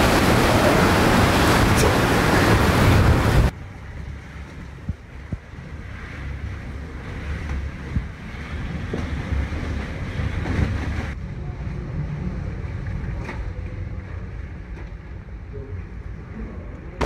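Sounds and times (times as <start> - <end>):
driving rain: 0.0 - 11.2
wind rushing: 0.0 - 11.2
low rumbling buffeting: 0.0 - 17.0.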